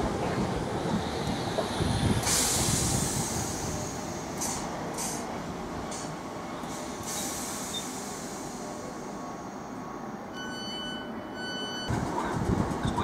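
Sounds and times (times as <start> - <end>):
electric train rumbling: 0.0 - 13.0
rail hiss: 0.6 - 10.3
short high-pitched beeps: 10.4 - 11.9.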